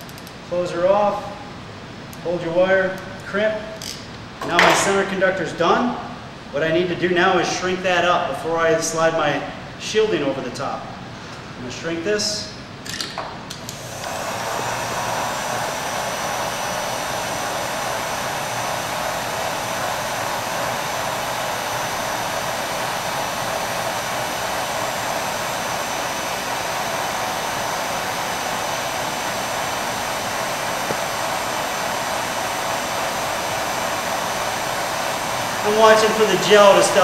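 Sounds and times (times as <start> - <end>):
heat gun blowing: 13.5 - 37.0.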